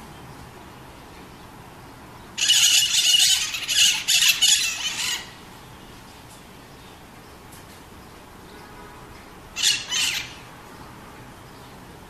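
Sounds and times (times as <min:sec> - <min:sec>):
parakeet screeching squawks: 0:02.4 - 0:05.4, 0:09.6 - 0:10.4.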